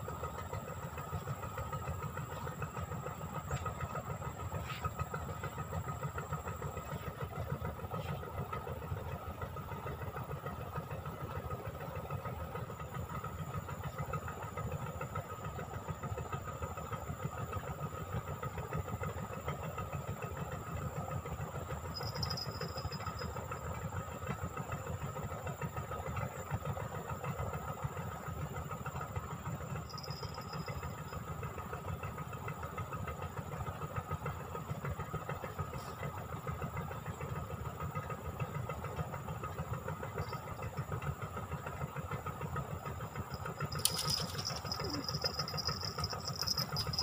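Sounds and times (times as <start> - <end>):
engine running with low throb: 0.0 - 47.0
rapid high clicking: 43.2 - 47.0.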